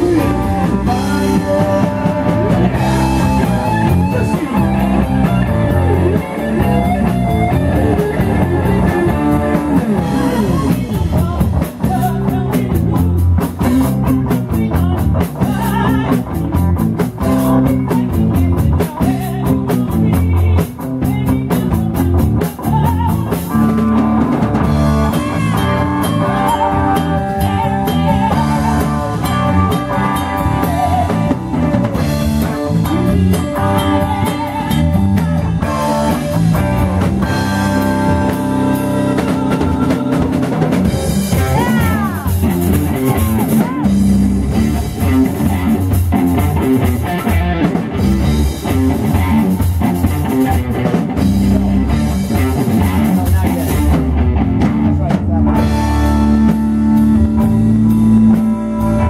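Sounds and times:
bass guitar: 0.0 - 59.0
drum kit: 0.0 - 59.0
electric guitars: 0.0 - 59.0
woman singing: 14.4 - 16.3, 17.4 - 23.5, 25.1 - 29.2, 30.3 - 31.4, 32.8 - 35.7, 39.0 - 40.6, 41.4 - 42.5.

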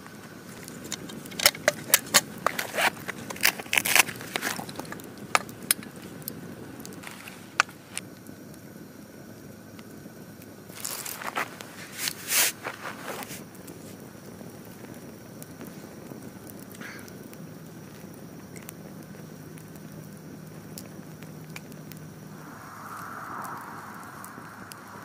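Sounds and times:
campfire crackling: 0.0 - 25.0
soft hiss: 10.2 - 25.0.

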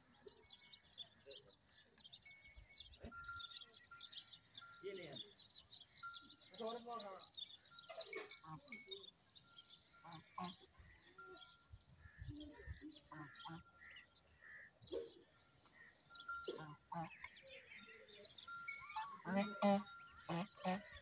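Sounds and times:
ducklings peeping and chirping: 0.2 - 21.0.

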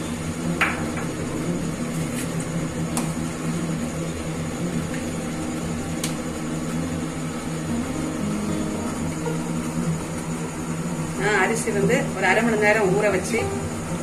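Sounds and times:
water boiling in a pot: 0.0 - 14.0.

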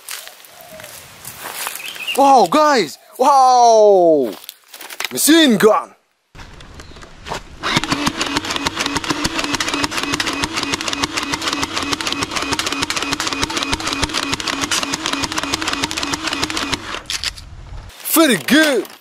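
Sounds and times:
toy blaster motor hum: 7.6 - 17.1.

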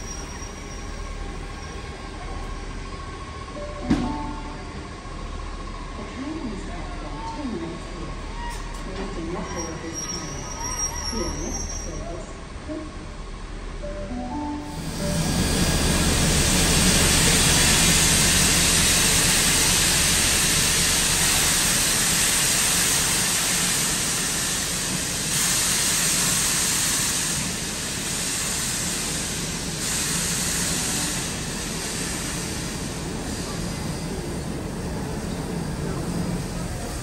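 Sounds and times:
steam hissing: 14.7 - 37.0.

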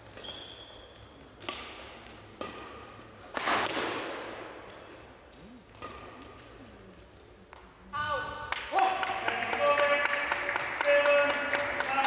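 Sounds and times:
racket hitting shuttlecock: 0.0 - 7.7.

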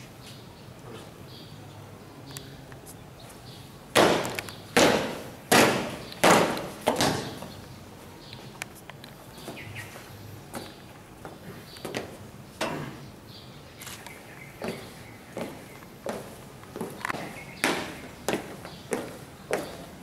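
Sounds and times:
marching feet stamping on pavement: 3.9 - 8.6, 9.3 - 12.3, 14.5 - 20.0.

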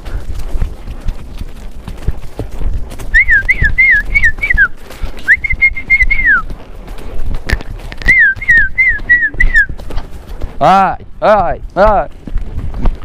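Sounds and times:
horse hooves knocking: 0.0 - 13.0
loud human whistling: 3.1 - 6.5, 8.0 - 9.8.

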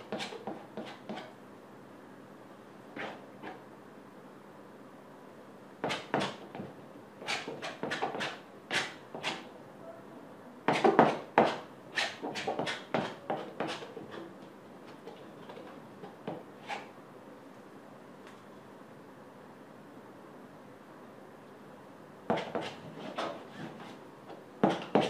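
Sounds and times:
palette knife scraping paint: 0.0 - 1.3, 3.0 - 3.6, 7.2 - 9.5, 10.7 - 14.3, 22.3 - 24.0.

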